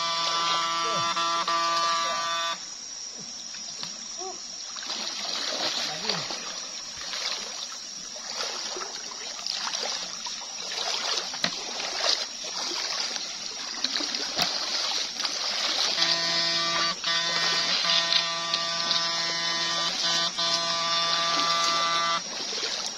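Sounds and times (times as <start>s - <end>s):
water splashing from wading: 0.0s - 22.9s
stream rushing: 4.8s - 22.9s.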